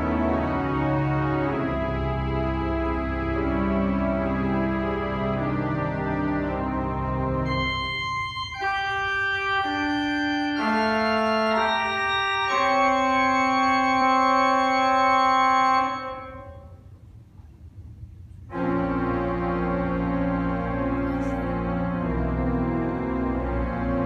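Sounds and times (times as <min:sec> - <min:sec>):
organ playing sustained chords: 0:00.0 - 0:17.2, 0:17.8 - 0:24.0
deep bass notes: 0:15.9 - 0:24.0.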